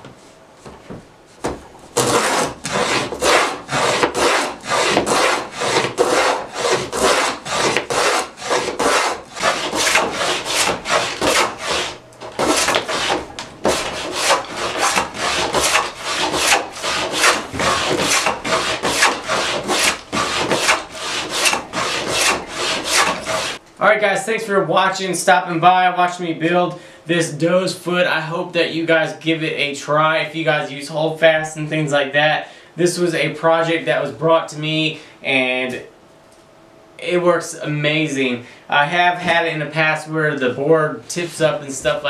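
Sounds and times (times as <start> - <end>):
plane rasping along wood: 2.0 - 23.6.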